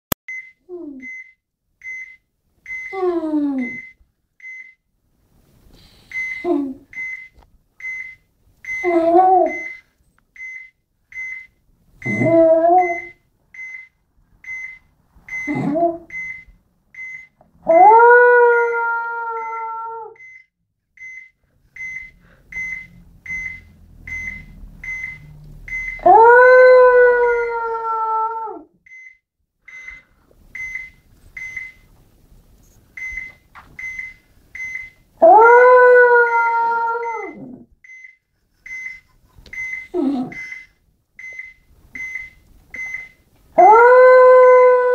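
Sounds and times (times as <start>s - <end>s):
dog howling: 17.7s - 20.2s, 26.0s - 28.7s, 35.2s - 37.5s, 43.6s - 44.9s.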